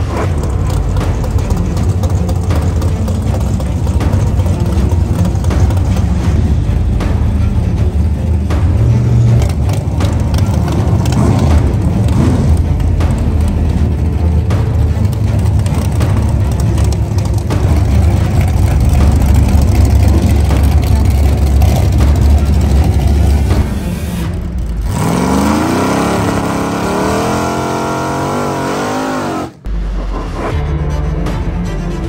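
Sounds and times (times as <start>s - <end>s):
drag racing engines roaring: 0.0s - 30.5s
single car engine accelerating: 8.5s - 29.7s.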